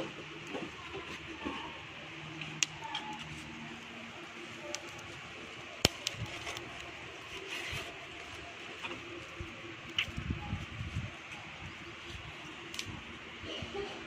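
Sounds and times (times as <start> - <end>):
coals hissing: 0.0 - 14.0.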